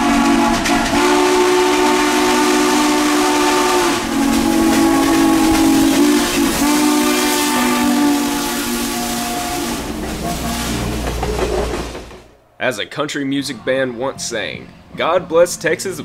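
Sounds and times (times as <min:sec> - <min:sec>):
steam whistle chord: 0:00.0 - 0:10.8
steady steam hiss: 0:01.2 - 0:11.0.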